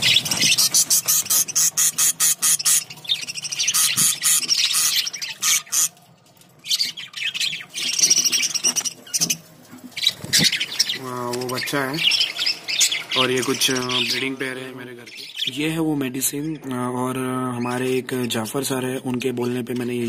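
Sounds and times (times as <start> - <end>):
budgerigars chirping: 0.0 - 6.0, 6.6 - 16.6.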